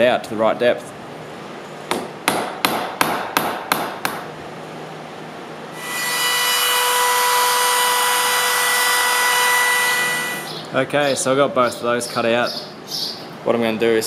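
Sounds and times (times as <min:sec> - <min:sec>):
chisel being struck: 0:01.9 - 0:04.2
router whining: 0:05.8 - 0:10.5.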